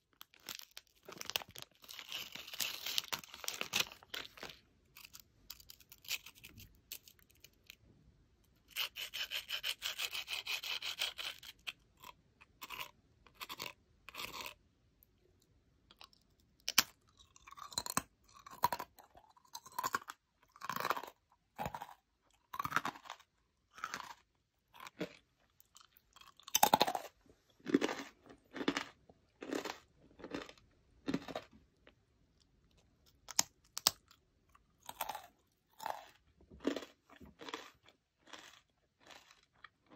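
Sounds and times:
crackers crackling in hand: 0:00.1 - 0:07.8, 0:33.1 - 0:34.2
crunchy chewing: 0:08.8 - 0:14.6, 0:15.9 - 0:39.9.

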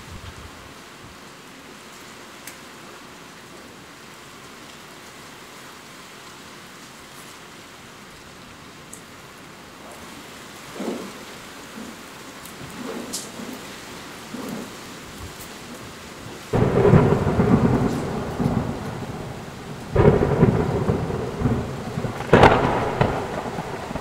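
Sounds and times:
heavy rain: 0:00.0 - 0:24.0
low rumbles: 0:16.5 - 0:24.0.

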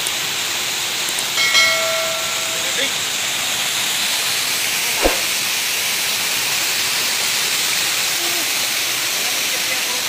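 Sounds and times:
short thump: 0:05.0 - 0:05.3.

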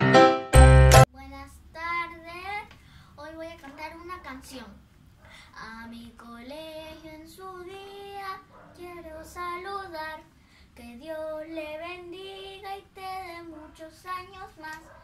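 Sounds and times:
girl singing: 0:01.0 - 0:04.8, 0:05.4 - 0:15.0.

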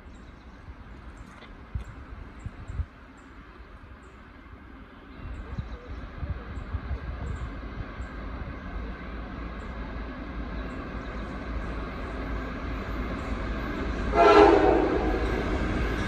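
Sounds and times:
diesel locomotive engine rumble: 0:00.0 - 0:16.0
locomotive horn blast: 0:14.0 - 0:15.6.

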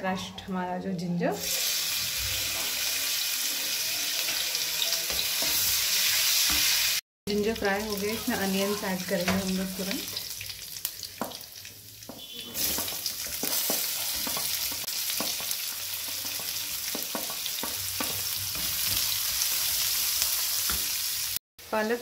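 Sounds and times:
onions sizzling in hot oil: 0:01.4 - 0:21.8.

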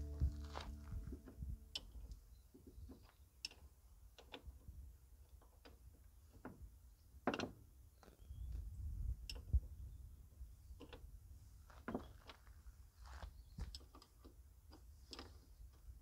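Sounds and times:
faint low rumble: 0:00.0 - 0:02.7.

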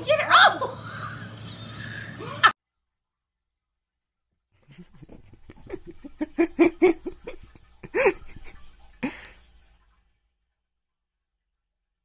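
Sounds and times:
person laughing: 0:04.6 - 0:09.3.

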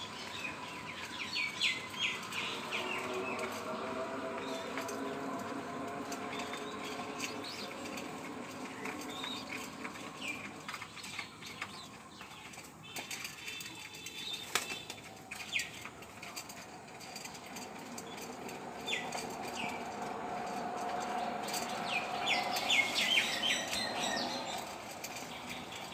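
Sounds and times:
pigeon wings flapping: 0:14.4 - 0:15.0.

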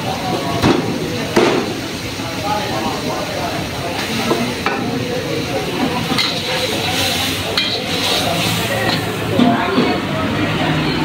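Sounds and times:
food sizzling in a wok: 0:00.0 - 0:10.9
spatula clinking against wok: 0:07.5 - 0:08.1.

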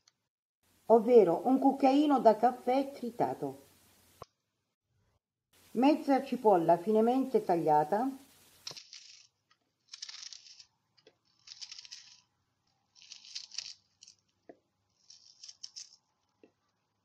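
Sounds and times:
rustling scrapes of onion: 0:08.2 - 0:12.3, 0:12.9 - 0:14.2, 0:14.9 - 0:16.0.

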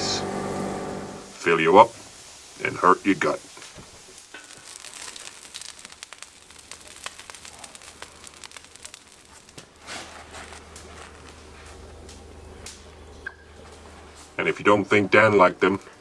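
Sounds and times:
low steady hum: 0:00.0 - 0:01.6, 0:06.5 - 0:15.6
burger patty sizzling on steel: 0:00.0 - 0:16.0.

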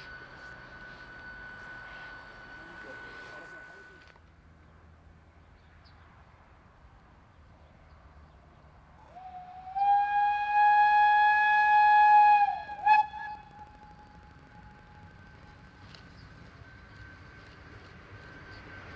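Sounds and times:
steam locomotive whistle: 0:00.0 - 0:04.1, 0:09.1 - 0:18.9.

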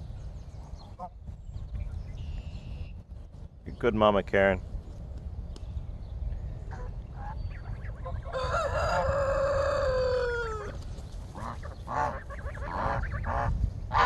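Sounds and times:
rooster crowing: 0:08.2 - 0:10.8
geese calling: 0:11.3 - 0:14.0.

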